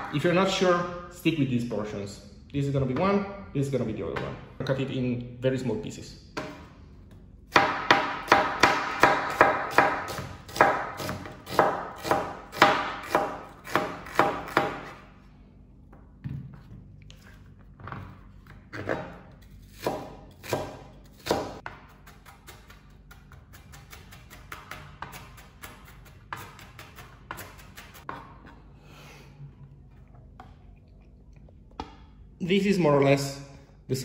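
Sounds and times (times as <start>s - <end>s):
knife chopping on plastic board: 7.5s - 15.0s, 18.7s - 28.6s.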